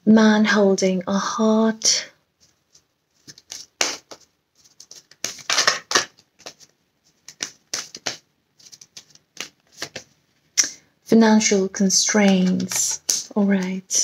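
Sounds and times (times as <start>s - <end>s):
cards being shuffled: 2.4s - 10.2s, 12.2s - 14.0s.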